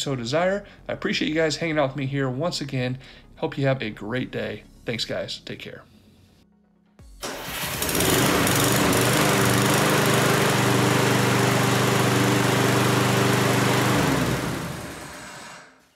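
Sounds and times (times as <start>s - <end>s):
lawn mower engine: 7.2s - 15.7s.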